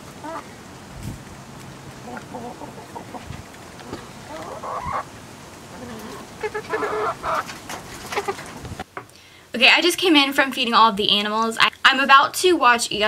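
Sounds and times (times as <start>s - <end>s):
hens clucking: 0.0s - 0.6s, 1.6s - 8.8s.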